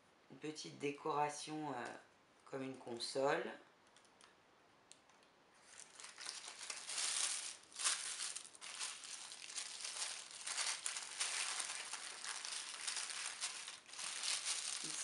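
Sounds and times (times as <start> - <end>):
tissue paper crinkling: 5.6 - 15.0.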